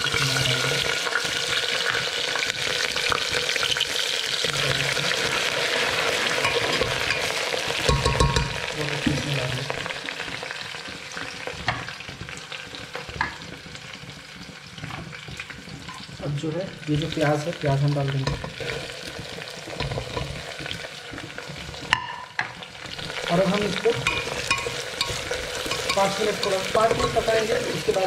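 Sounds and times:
food sizzling in hot oil: 0:00.0 - 0:28.0
spoon knocking: 0:06.4 - 0:09.2, 0:24.0 - 0:27.6.

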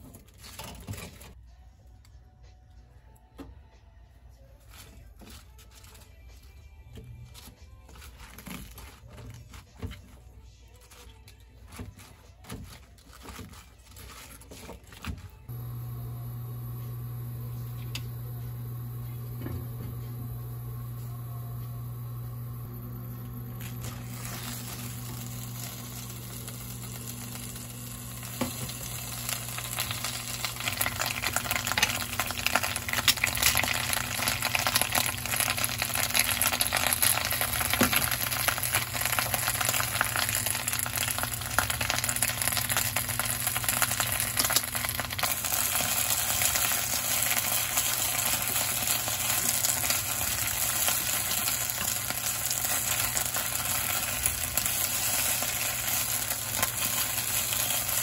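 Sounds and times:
low steady hum: 0:15.5 - 0:58.0
spinach sizzling in oil: 0:22.0 - 0:58.0.

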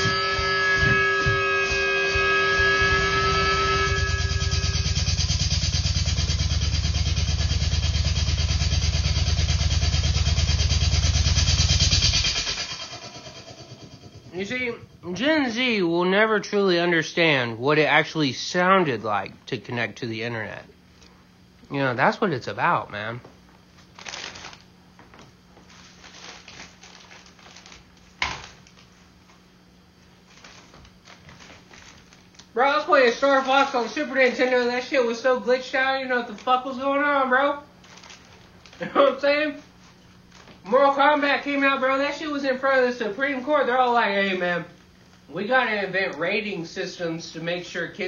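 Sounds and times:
low electrical hum: 0:00.0 - 0:48.0.

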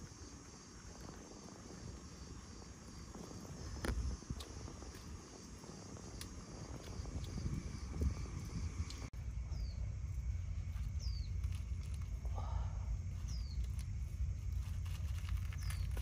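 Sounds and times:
insects chirring: 0:00.0 - 0:16.0
low rumble: 0:00.8 - 0:16.0.

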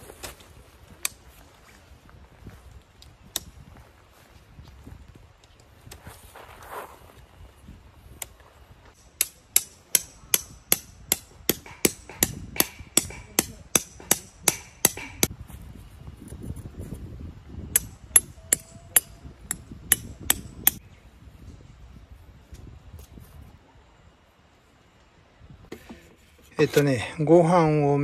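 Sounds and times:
hammer striking tent pegs: 0:09.0 - 0:15.3.

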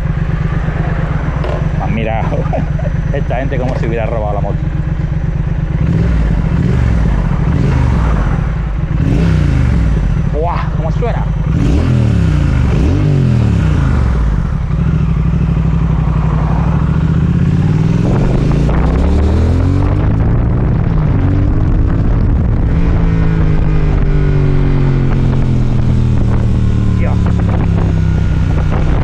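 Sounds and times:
motorcycle engine accelerating: 0:00.0 - 0:29.0
wind rush: 0:16.0 - 0:29.0.

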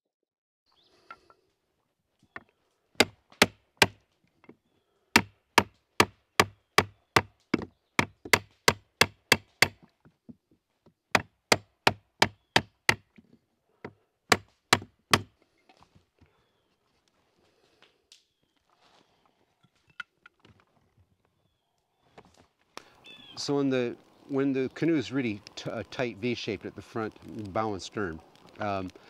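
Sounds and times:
hatchet knocking on wood: 0:05.2 - 0:06.9.

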